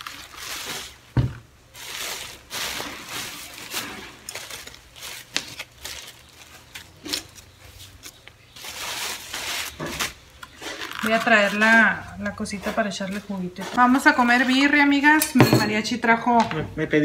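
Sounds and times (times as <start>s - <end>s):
plastic bag rustling: 0.0s - 15.2s
items knocking on a table: 1.1s - 1.4s, 15.4s - 15.8s.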